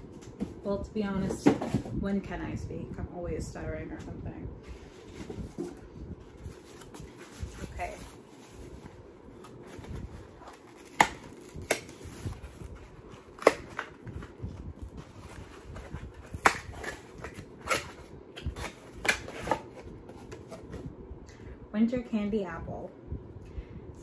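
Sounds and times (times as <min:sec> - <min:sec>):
packaging rustling: 0:04.7 - 0:20.8.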